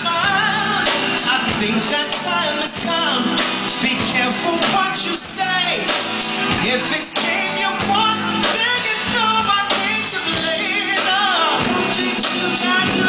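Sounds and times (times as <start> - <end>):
live band playing: 0.0 - 13.0
man singing: 0.0 - 13.0.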